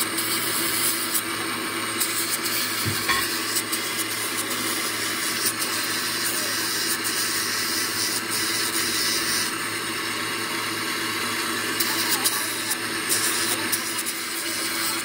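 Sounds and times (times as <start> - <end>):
grinding wheel motor humming: 0.0 - 15.0
metal gear grinding hiss: 11.8 - 15.0.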